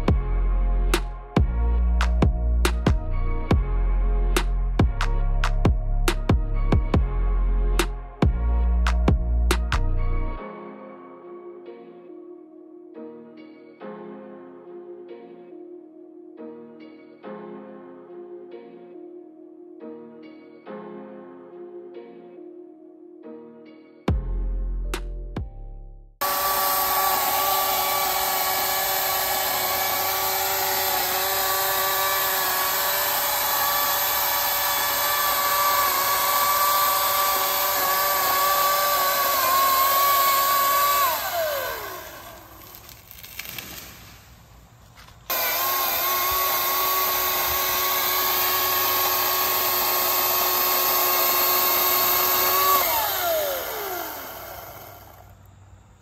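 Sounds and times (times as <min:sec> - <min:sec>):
electric chainsaw motor whining: 0:26.2 - 0:43.9, 0:45.3 - 0:55.5
chain cutting through tree trunk: 0:26.2 - 0:44.2, 0:44.9 - 0:55.3.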